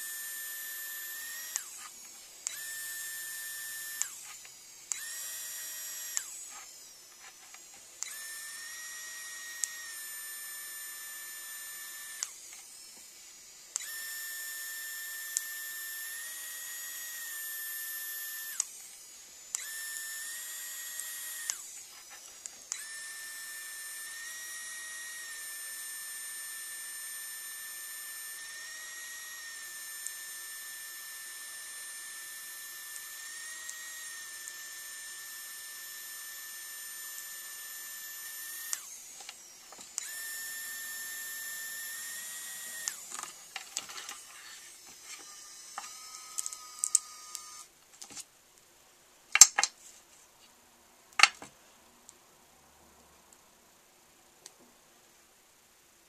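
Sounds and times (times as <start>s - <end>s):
pen motor whining: 0.0s - 48.2s.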